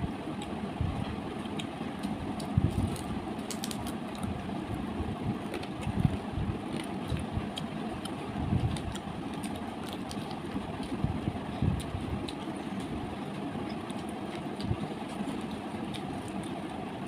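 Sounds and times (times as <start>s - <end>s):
low background rumble: 0.0s - 17.0s
chewing and food smacks: 5.4s - 11.0s, 11.7s - 16.8s.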